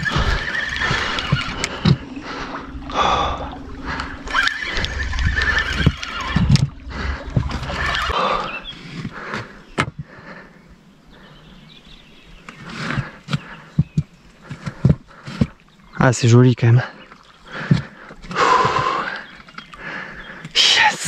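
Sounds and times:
fishing reel drag buzzing: 0:00.0 - 0:02.0, 0:04.0 - 0:08.2
low rumble: 0:00.0 - 0:09.2.

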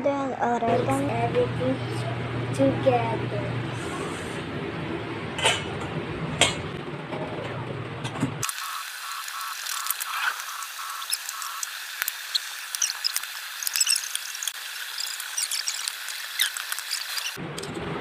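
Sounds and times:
short high squeaks: 0:09.2 - 0:17.4.

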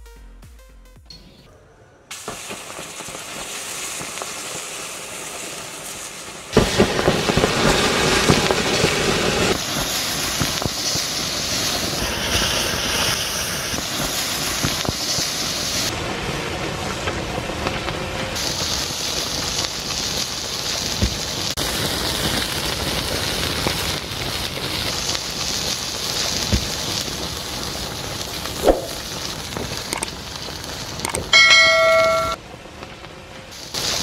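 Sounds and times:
lava hissing and crackling: 0:02.1 - 0:32.0, 0:33.5 - 0:34.0
bell-like ringing tone: 0:31.2 - 0:32.4.

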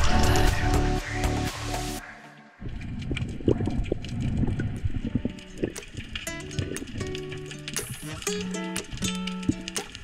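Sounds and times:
sharp percussive clicks: 0:05.6 - 0:10.0.

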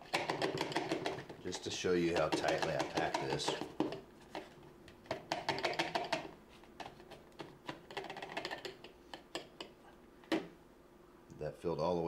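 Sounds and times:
plastic funnel tapping on metal: 0:00.1 - 0:04.0, 0:05.1 - 0:06.3.

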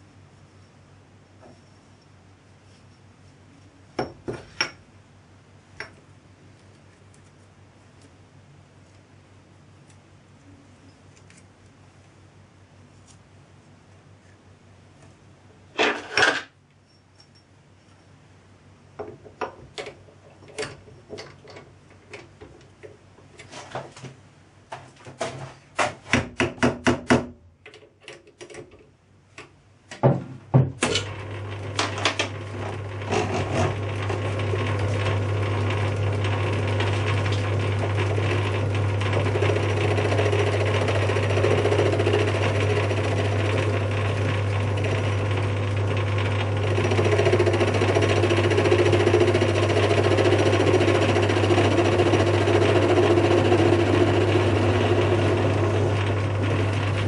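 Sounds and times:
cutting tool noise: 0:30.9 - 0:57.0
lathe running hum: 0:31.0 - 0:57.0.

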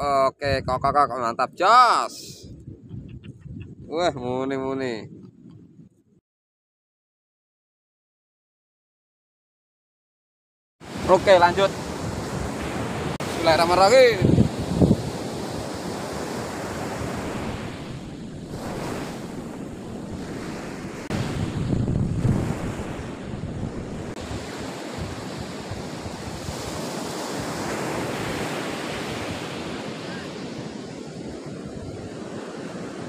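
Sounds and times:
wind blowing on microphone: 0:00.0 - 0:06.2, 0:10.9 - 0:33.0
ocean surf breaking on beach: 0:10.8 - 0:33.0.

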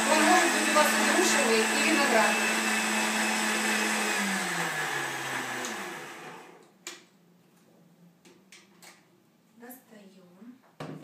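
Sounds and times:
blender motor running: 0:00.0 - 0:06.6.

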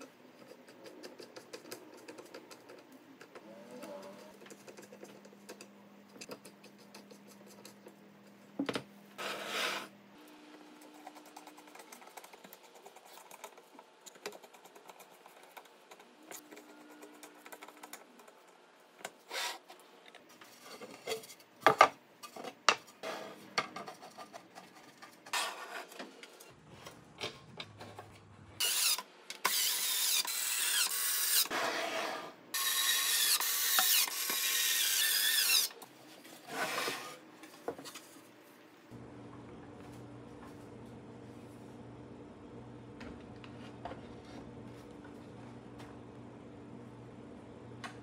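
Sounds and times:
rubbing and scraping on wood: 0:36.1 - 0:38.3.

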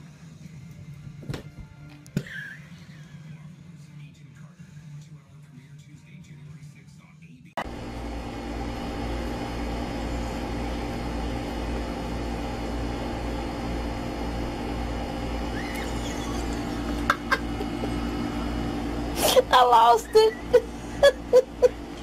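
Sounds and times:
steady machine hum: 0:07.6 - 0:22.0.

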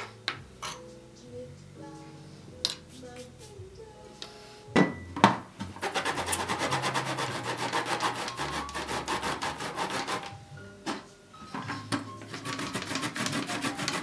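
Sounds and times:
lemon rind rasping on a grater: 0:05.8 - 0:10.3, 0:12.4 - 0:14.0.

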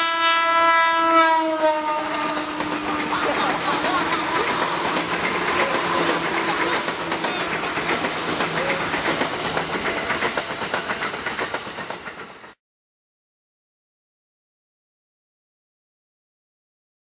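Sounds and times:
train wheels clicking over rail joints: 0:02.0 - 0:12.6.

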